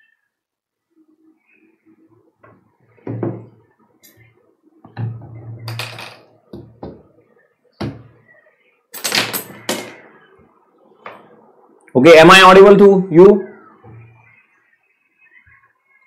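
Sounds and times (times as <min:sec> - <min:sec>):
objects knocking and clattering: 0:03.0 - 0:03.6, 0:04.9 - 0:07.1, 0:09.0 - 0:10.0.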